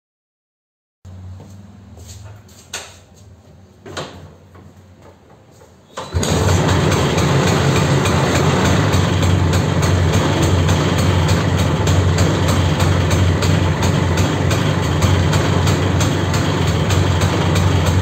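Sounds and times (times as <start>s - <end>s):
scooter engine idling: 6.1s - 18.0s.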